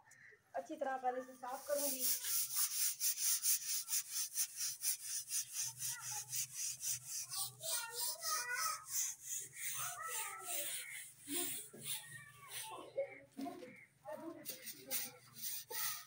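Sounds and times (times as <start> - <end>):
broom sweeping floor: 1.4 - 12.8.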